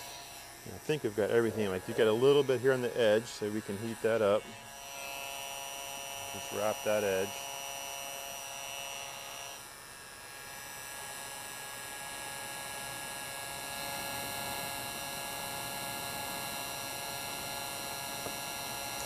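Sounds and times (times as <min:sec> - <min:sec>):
heat gun fan hum with whine: 0:00.0 - 0:19.0.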